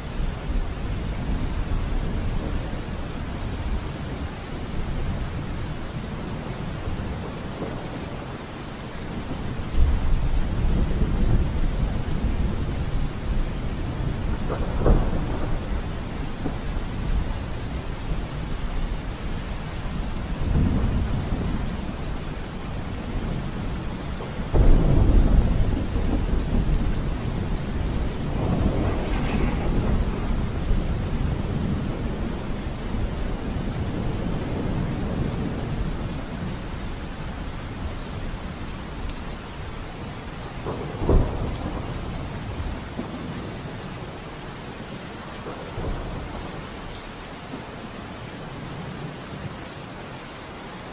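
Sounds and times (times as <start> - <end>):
steady rain: 0.0 - 50.9
low rolls of thunder: 9.2 - 19.0, 19.8 - 36.7, 40.6 - 43.8, 45.4 - 46.7.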